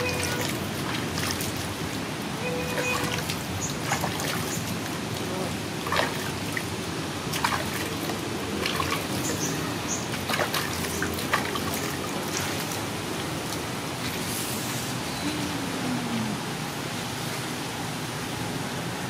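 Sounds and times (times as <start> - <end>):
water dripping: 0.0 - 13.8
water splashing and trickling: 0.0 - 18.0.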